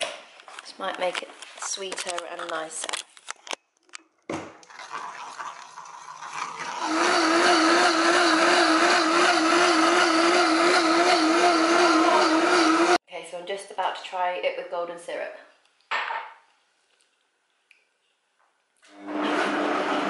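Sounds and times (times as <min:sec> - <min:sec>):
blender motor whining: 0:05.9 - 0:13.0, 0:18.9 - 0:20.0.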